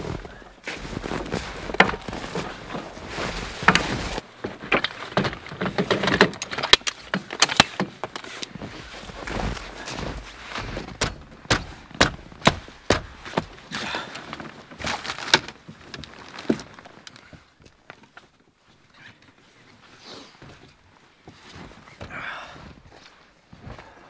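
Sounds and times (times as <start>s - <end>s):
footsteps crunching in snow: 0.0s - 4.7s, 8.3s - 17.4s.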